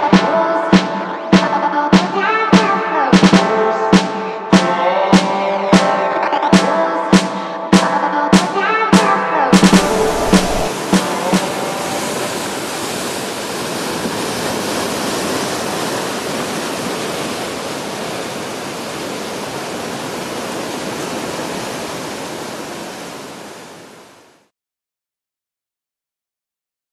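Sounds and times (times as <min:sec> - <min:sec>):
sea surf washing over rocks: 0:09.6 - 0:24.2.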